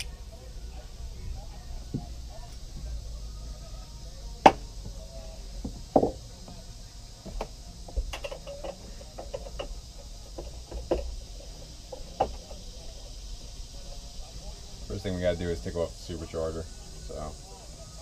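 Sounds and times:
hand tools knocking and clicking: 0:07.3 - 0:11.2.

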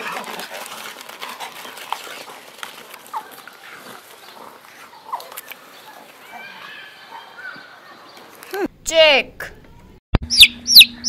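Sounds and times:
wolves snarling and scuffling: 0:00.0 - 0:06.6.

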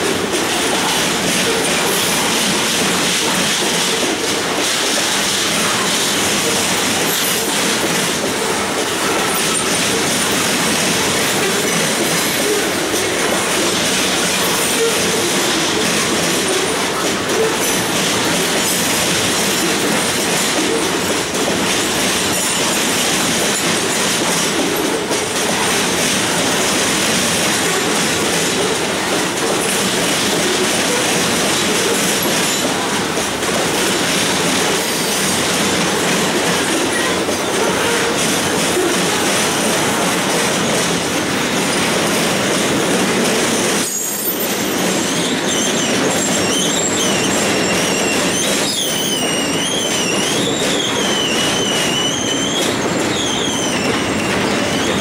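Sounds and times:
train wheels rolling on track: 0:00.0 - 0:55.0.

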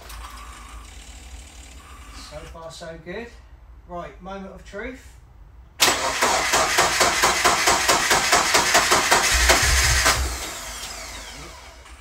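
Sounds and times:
starter motor cranking: 0:05.8 - 0:12.0.

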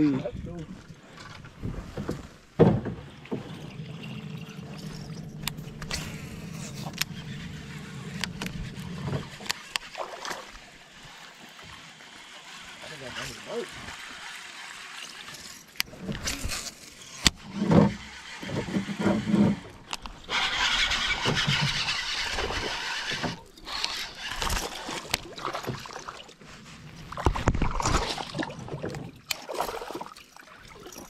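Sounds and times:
lure churning across water: 0:00.8 - 0:31.0
fish splashing at surface: 0:03.3 - 0:12.6, 0:27.1 - 0:31.0
fishing reel cranking: 0:04.2 - 0:25.7.

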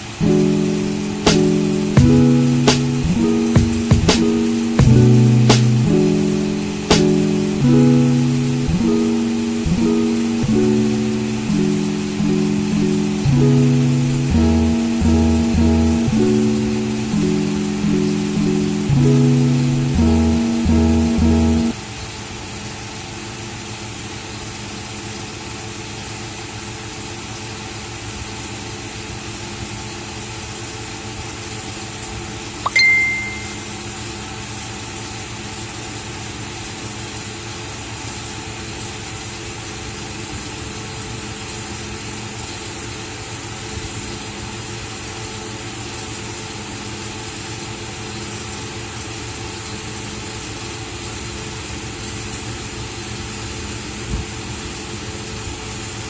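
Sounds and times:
short high beep: 0:32.7 - 0:33.8.

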